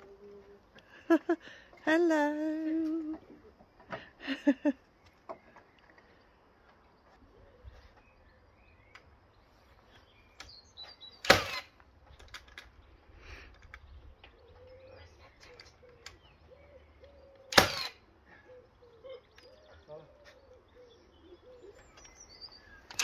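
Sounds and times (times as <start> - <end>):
faint birds chirping: 0.0 - 23.0.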